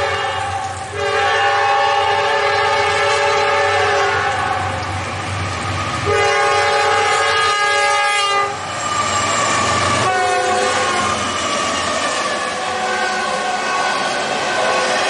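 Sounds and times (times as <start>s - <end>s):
locomotive air horn blasts: 0.0s - 4.8s, 6.0s - 8.6s, 10.0s - 11.0s, 12.4s - 15.0s
train rumbling: 0.0s - 15.0s.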